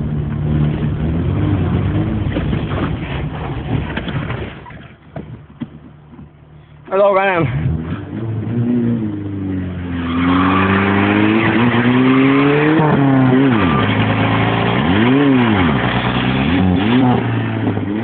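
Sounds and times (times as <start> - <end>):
car engine revving hard: 7.4 - 18.0.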